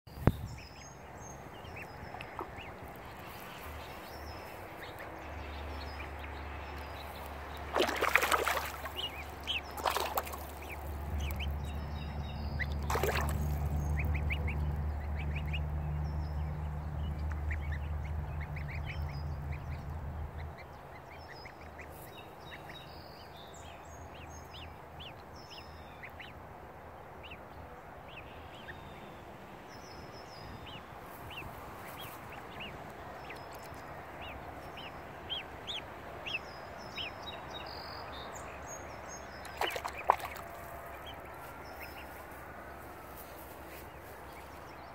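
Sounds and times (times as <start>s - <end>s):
goslings peeping: 0.2s - 16.4s, 17.0s - 23.4s, 24.1s - 26.4s, 29.9s - 37.5s, 39.2s - 44.9s.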